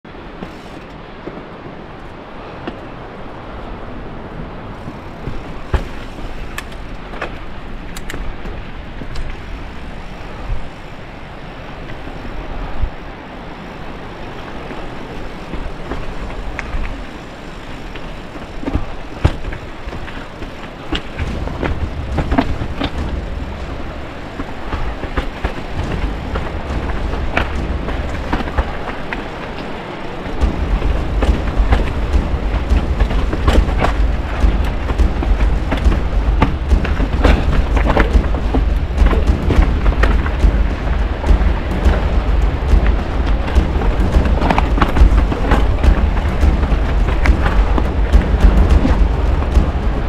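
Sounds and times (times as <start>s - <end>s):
bike rattling: 0.0s - 1.4s, 4.7s - 12.3s, 13.6s - 50.0s
bike tyres rolling over rocks: 0.1s - 50.0s
wheels knocking on rocks: 4.8s - 10.8s, 14.3s - 50.0s
low rumble: 21.1s - 50.0s.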